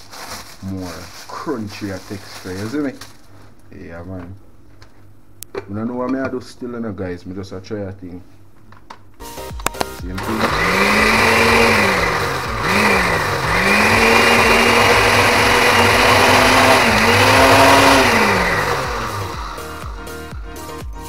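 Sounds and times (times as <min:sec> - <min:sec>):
blender clicks: 0:10.1 - 0:19.6
blender motor grinding: 0:10.2 - 0:20.0.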